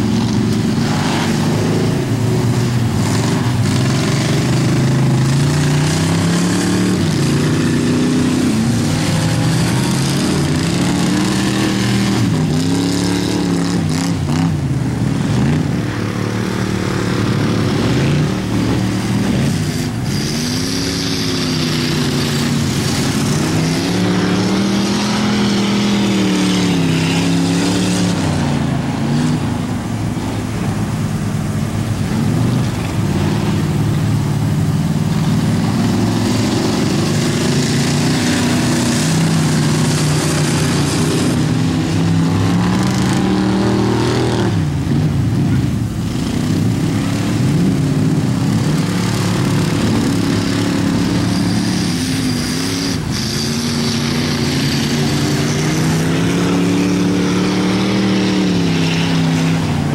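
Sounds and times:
racing car engines revving: 0.0 - 59.9.

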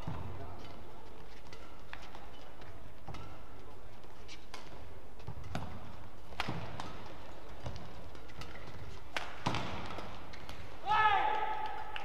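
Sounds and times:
racket striking shuttlecock: 4.4 - 12.0.

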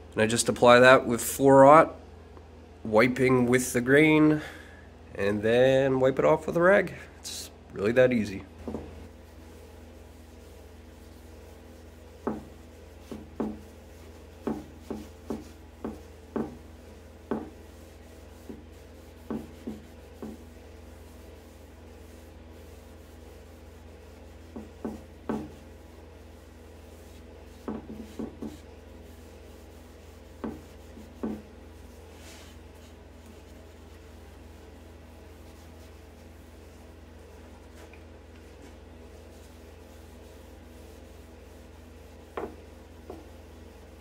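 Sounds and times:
steady low hum: 0.0 - 44.0
steel wool scrubbing wood: 8.6 - 44.0.

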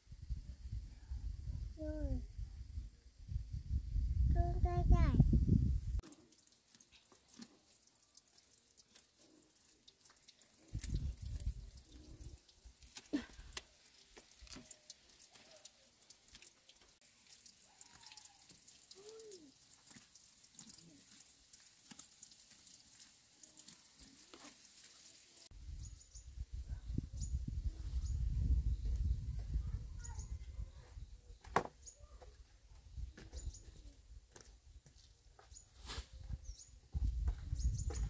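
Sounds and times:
water drips: 6.0 - 25.5.

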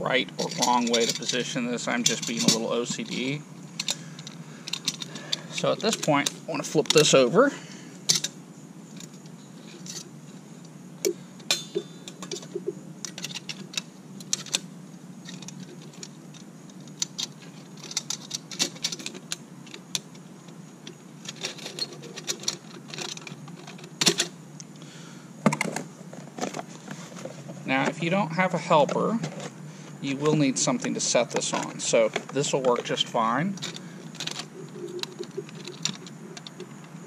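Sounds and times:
steady low hum: 0.0 - 37.0
small metallic clicks: 33.6 - 37.0.

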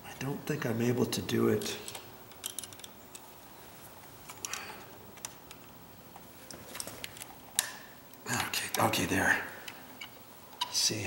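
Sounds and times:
screwdriver ticking and scraping: 1.6 - 3.3.

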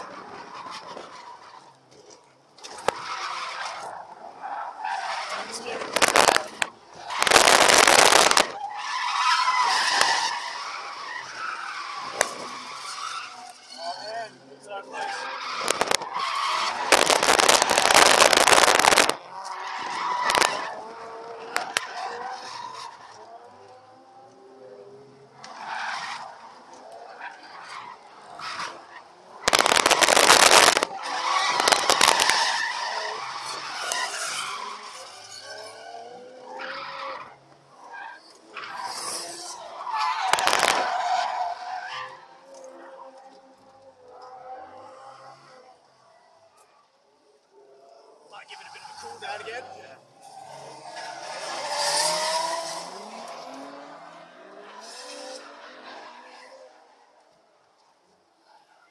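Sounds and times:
tyres skidding: 0.0 - 47.0, 48.1 - 58.9
loud harsh crackling: 6.0 - 8.6, 15.6 - 16.1, 16.7 - 19.3, 20.2 - 20.6, 29.5 - 30.9, 31.5 - 32.4, 40.3 - 41.0
loud rushing noise: 7.2 - 8.6, 16.8 - 19.2, 29.5 - 30.9.

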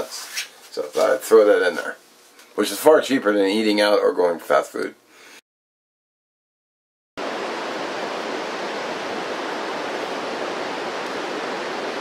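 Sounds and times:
flowing water rushing: 7.2 - 12.0.

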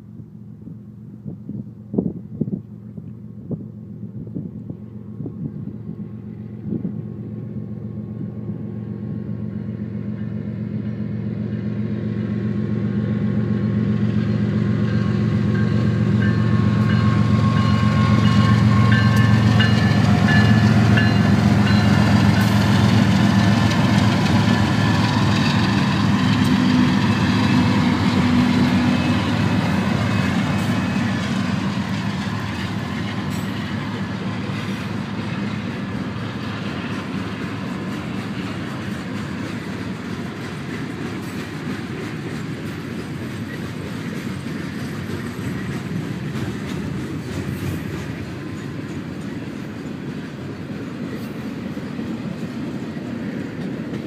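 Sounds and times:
diesel locomotive engine hum: 0.0 - 54.0
rail cars rolling past: 0.0 - 54.0.

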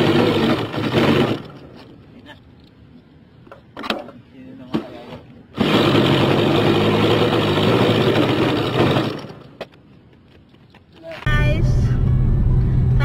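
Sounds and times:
electric starter whirring: 5.5 - 9.6.

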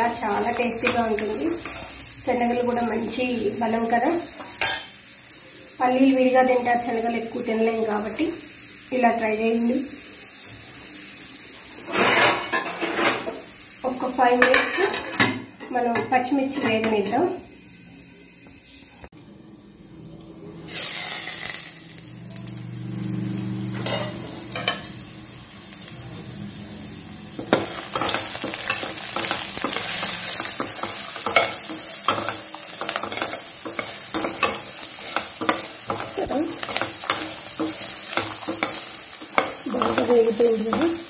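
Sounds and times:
food sizzling in hot oil: 0.0 - 41.0
metal spoon scraping pan: 27.5 - 41.0.

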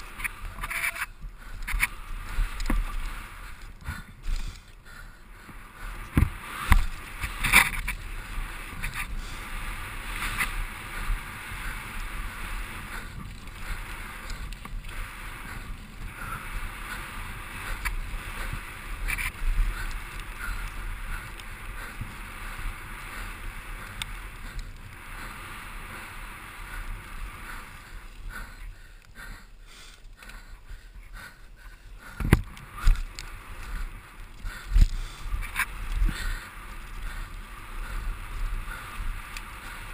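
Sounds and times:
bike rattling: 0.0 - 39.9.

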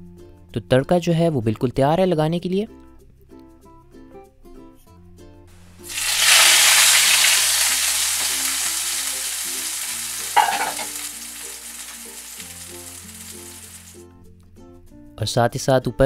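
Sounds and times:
hot oil sizzling: 5.6 - 14.0.

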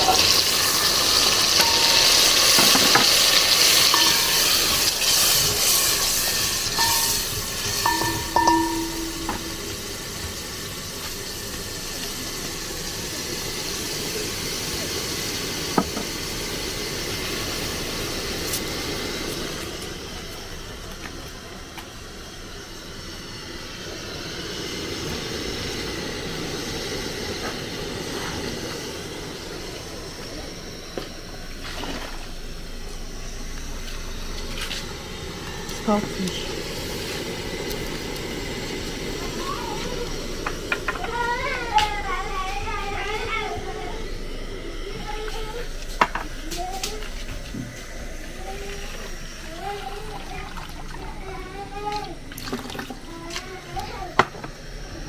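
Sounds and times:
food sizzling in a pot: 0.0 - 55.0
utensil clinking: 1.4 - 10.0.

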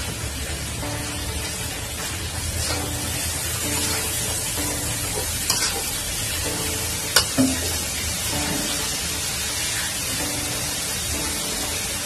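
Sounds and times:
syrup sizzling in a wok: 0.0 - 12.0
metal spatula knocking on pan: 7.2 - 7.8.

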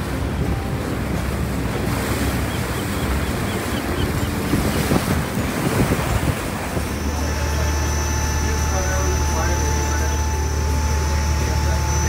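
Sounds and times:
wind buffeting microphone: 0.0 - 7.6
sea water rushing past boat: 0.0 - 12.0.

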